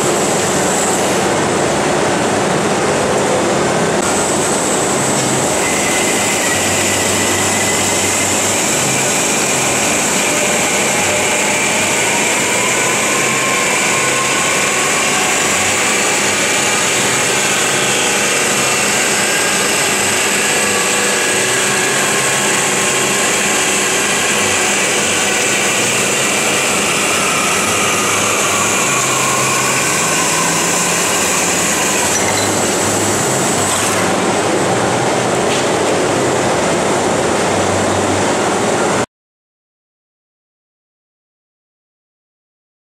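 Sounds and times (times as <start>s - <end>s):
band saw cutting metal: 5.2s - 34.2s.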